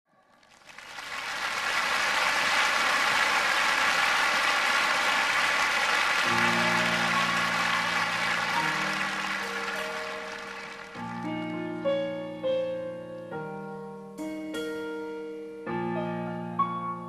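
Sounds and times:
crowd applauding: 0.2s - 11.4s
slow piano chords: 6.2s - 17.0s.

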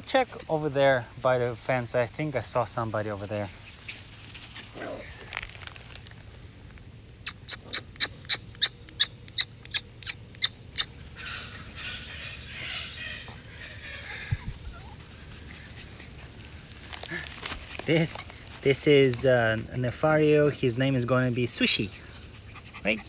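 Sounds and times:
rustling: 0.0s - 7.2s, 13.4s - 23.0s.

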